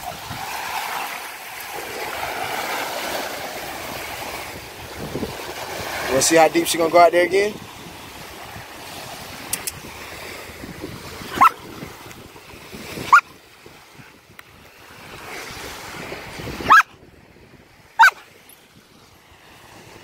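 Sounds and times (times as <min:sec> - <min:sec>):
surf: 0:00.0 - 0:20.0
wind: 0:00.0 - 0:20.0
dog barking: 0:11.3 - 0:11.6, 0:16.6 - 0:16.9, 0:18.0 - 0:18.2.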